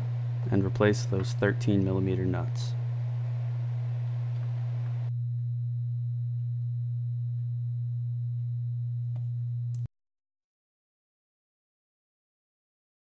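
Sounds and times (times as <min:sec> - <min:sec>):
loud low hum: 0:00.0 - 0:09.9.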